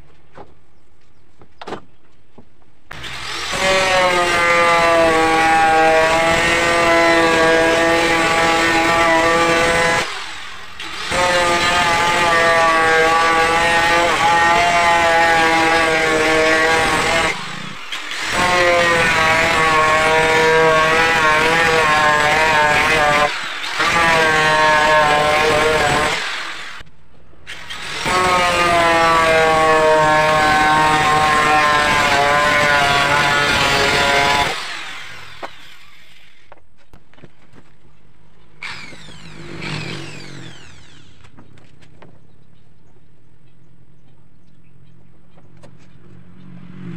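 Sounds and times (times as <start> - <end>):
angle grinder cutting plywood: 2.9 - 26.8, 27.4 - 36.9, 38.6 - 42.0.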